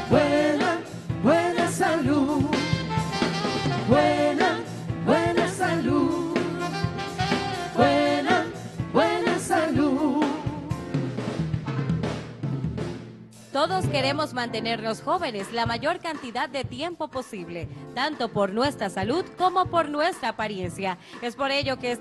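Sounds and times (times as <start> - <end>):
voices singing over a band: 0.0 - 2.9, 3.6 - 10.7.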